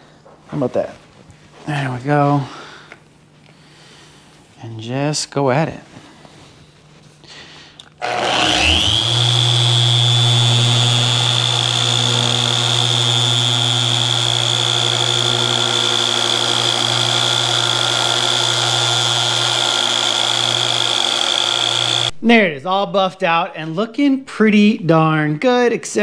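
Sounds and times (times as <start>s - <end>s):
paint polisher whining: 8.0s - 22.2s.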